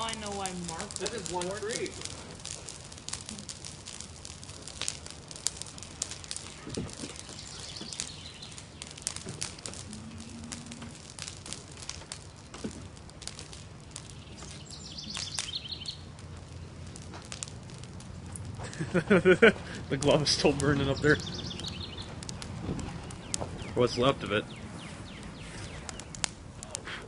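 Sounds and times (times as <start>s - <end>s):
tree fire crackling and popping: 0.0s - 27.0s
faint bird chirps: 7.2s - 9.0s, 14.1s - 16.1s, 20.9s - 22.1s.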